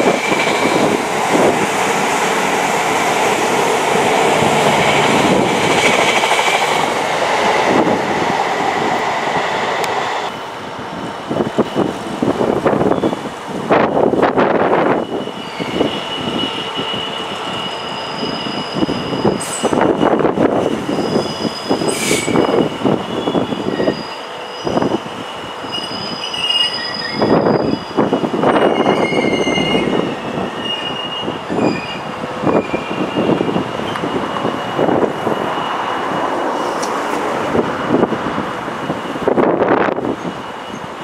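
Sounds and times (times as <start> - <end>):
train rumble: 0.0 - 26.1
train wheel squeal: 12.8 - 13.2, 14.8 - 36.9, 38.8 - 41.0.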